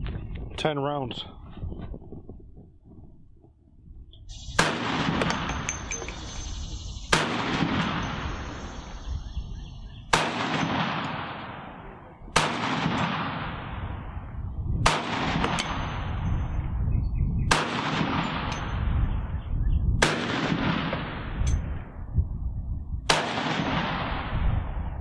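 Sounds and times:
rifle shots: 4.3 - 6.5, 7.1 - 9.0, 10.1 - 14.1, 14.8 - 16.2, 17.5 - 18.8, 20.0 - 21.8, 23.1 - 24.4.

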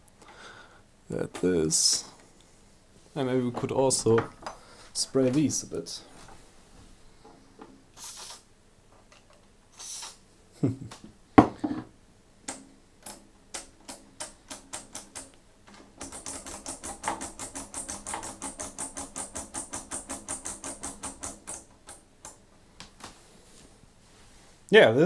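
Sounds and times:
short hisses: 8.0 - 8.5, 9.7 - 10.2
switches clicking: 12.4 - 23.0.

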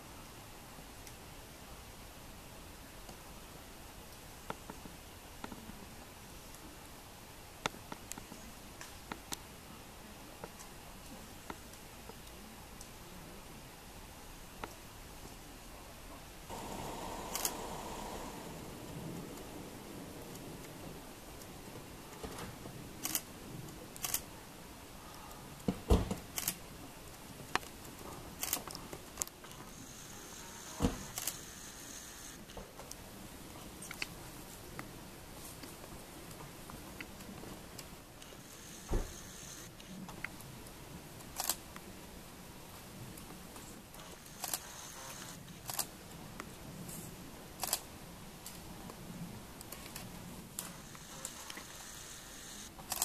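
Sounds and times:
faint steady hiss: 0.0 - 53.0
low outdoor background: 0.0 - 53.0
sharp clicks: 17.2 - 17.6
camera shutter clicking: 17.3 - 17.6, 24.0 - 24.2, 31.0 - 32.4, 41.4 - 41.6, 44.2 - 45.9, 47.6 - 47.8, 50.9 - 53.0.

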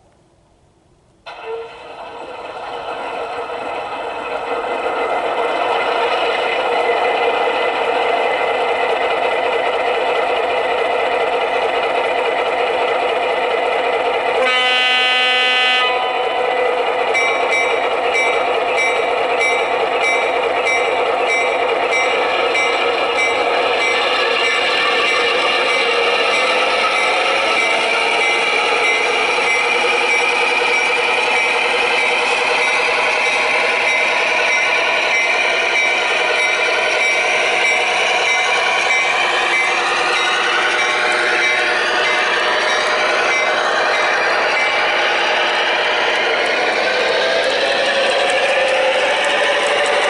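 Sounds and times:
model train diesel engine sound: 0.0 - 50.0
train horn blast: 14.4 - 16.4.

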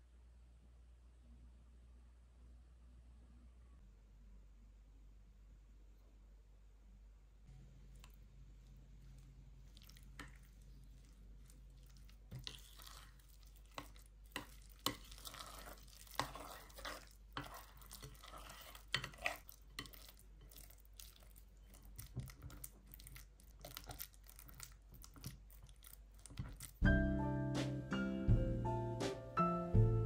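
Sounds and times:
spoon scraping glass bowl: 12.4 - 20.7.

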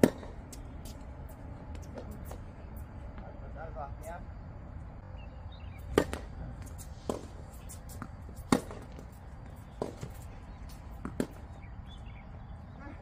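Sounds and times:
tennis ball struck with rackets: 0.0 - 1.0, 5.9 - 11.7
tennis ball bounces: 0.0 - 2.5, 5.8 - 12.0.

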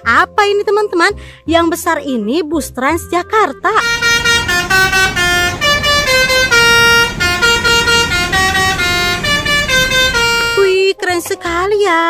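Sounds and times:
bus horn playing a tune: 3.7 - 11.0
low traffic rumble: 3.8 - 10.8.

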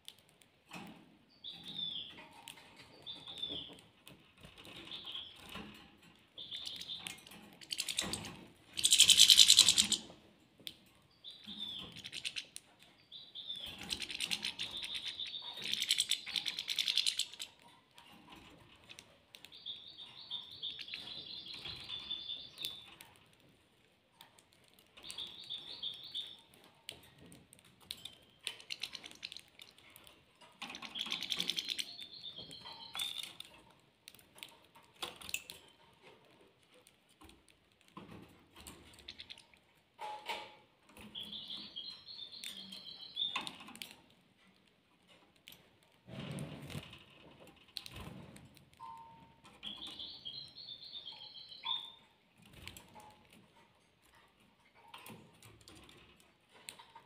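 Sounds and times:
small birds twittering: 1.3 - 3.9, 4.6 - 5.8, 6.4 - 10.2, 11.1 - 17.6, 18.8 - 23.0, 25.0 - 26.6, 28.0 - 33.5, 38.6 - 39.6, 41.0 - 43.9, 48.8 - 52.6
birds cracking seed clicks: 6.6 - 8.2, 13.8 - 17.6.

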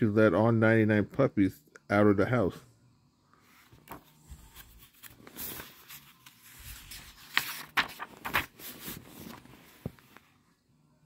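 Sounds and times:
paper pages turning: 3.5 - 10.3
paper crinkles: 3.7 - 10.2.

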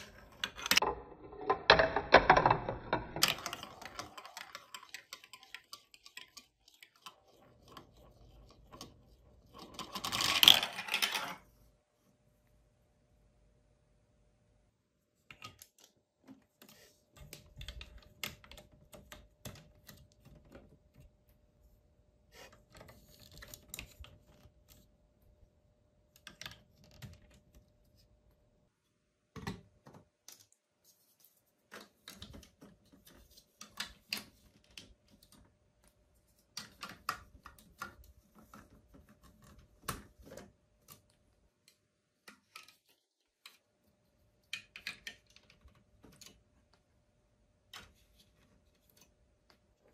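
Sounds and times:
plastic blocks clicking together: 0.0 - 11.4, 44.5 - 46.4.

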